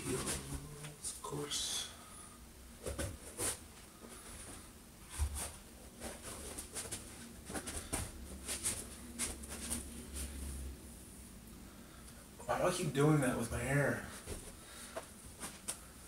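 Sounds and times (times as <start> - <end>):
clothing rustling and crackling: 2.8 - 10.8, 14.0 - 16.0.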